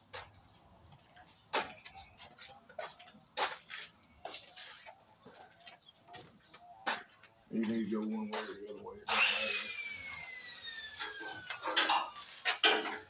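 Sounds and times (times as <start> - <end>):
tools and pipe clicking: 11.0 - 13.0.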